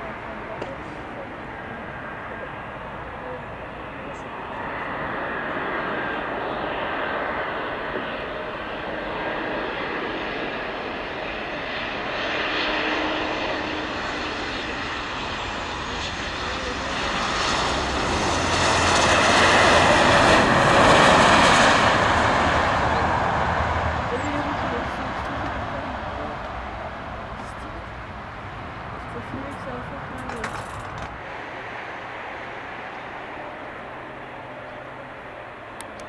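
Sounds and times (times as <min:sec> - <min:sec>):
jet airliner landing: 0:00.0 - 0:36.0.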